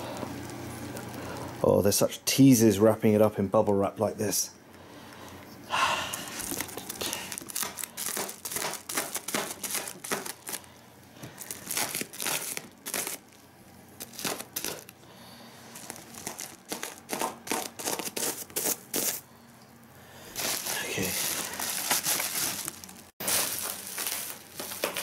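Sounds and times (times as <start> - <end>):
bubble wrap crinkling: 6.2 - 13.4, 14.0 - 15.0, 15.6 - 19.2, 20.3 - 25.0.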